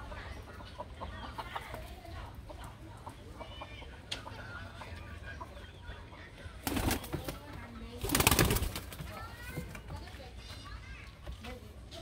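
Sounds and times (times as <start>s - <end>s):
pigeon wings flapping: 6.6s - 7.4s, 8.0s - 9.2s.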